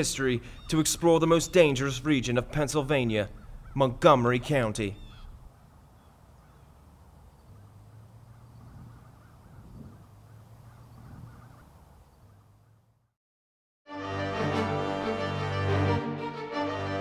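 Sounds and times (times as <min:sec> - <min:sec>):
outdoor ambience with low hum: 0:00.0 - 0:13.0.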